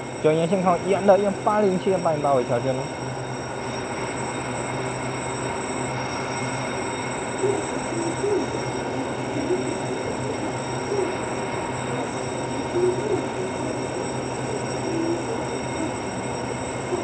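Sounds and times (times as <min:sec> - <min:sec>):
high steady whines: 0:00.0 - 0:17.0
train equipment humming: 0:00.0 - 0:17.0.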